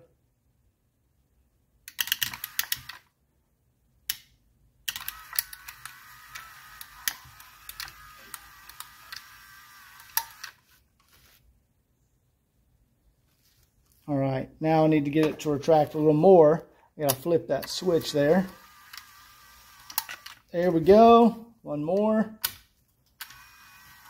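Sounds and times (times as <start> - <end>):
power antenna motor whirring: 4.9 - 10.7, 17.6 - 20.8, 23.2 - 24.0.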